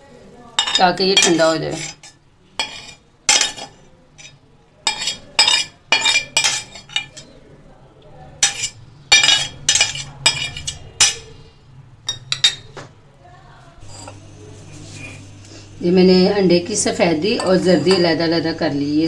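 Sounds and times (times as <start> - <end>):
metal spoon scraping a pan: 0.6 - 7.4, 8.4 - 11.5, 13.8 - 15.7.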